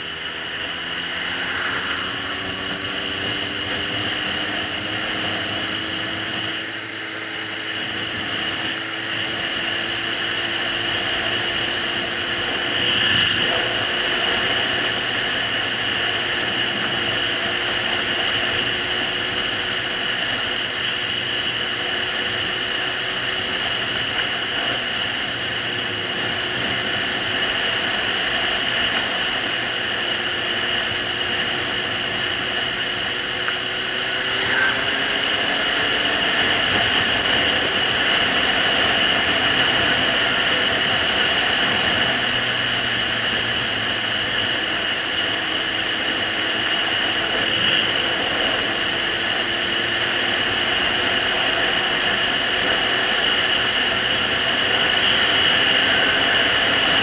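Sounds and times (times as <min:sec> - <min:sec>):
motorcycle engine running: 0:00.0 - 0:57.0
wind rush: 0:00.2 - 0:05.2.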